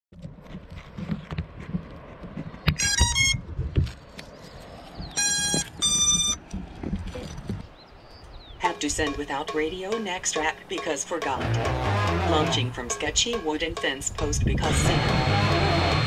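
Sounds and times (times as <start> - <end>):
electronic startup beeps: 5.2 - 6.4
handling bumps: 8.6 - 14.6.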